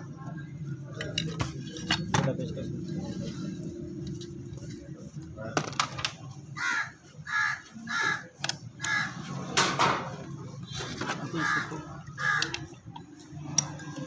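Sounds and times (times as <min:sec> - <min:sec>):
crow cawing: 0:06.6 - 0:09.3, 0:11.4 - 0:12.8.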